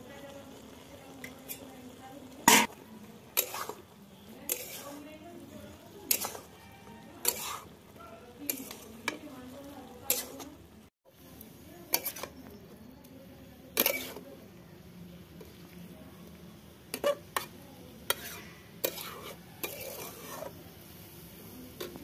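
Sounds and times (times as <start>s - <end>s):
metal spatula scraping a metal pot: 2.4s - 9.2s, 10.0s - 10.5s, 11.9s - 12.4s, 13.8s - 14.2s, 16.9s - 20.6s.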